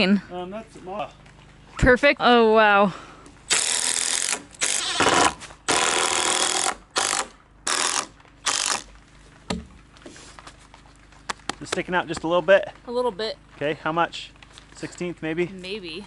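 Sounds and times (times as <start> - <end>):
impact driver driving screws: 3.5 - 8.8.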